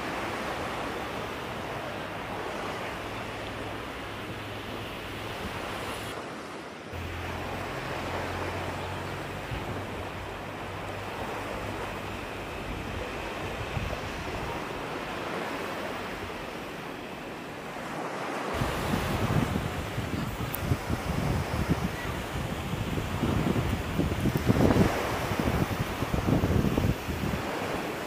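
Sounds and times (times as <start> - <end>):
sea surf on beach: 0.0 - 28.0
wind on microphone: 7.0 - 16.8, 18.5 - 28.0.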